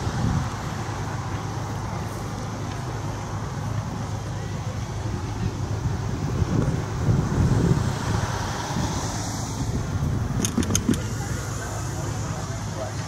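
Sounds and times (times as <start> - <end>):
wind on microphone: 5.4 - 11.1
sharp ticks: 10.4 - 11.0.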